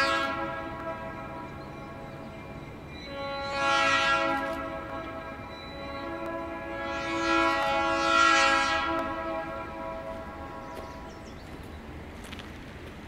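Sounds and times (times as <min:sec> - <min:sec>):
locomotive air horn chord: 0:00.0 - 0:11.4.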